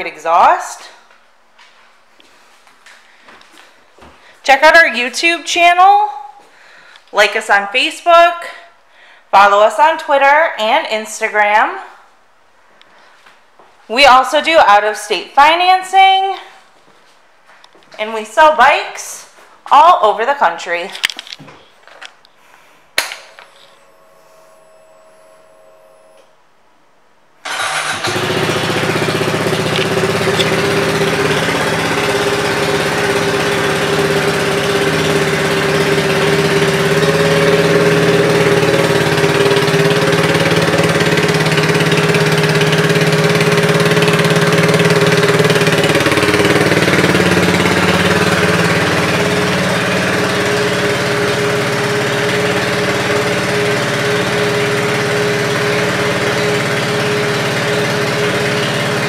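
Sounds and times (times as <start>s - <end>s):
faint hum: 22.2s - 27.4s
motorcycle engine idling: 27.5s - 59.0s.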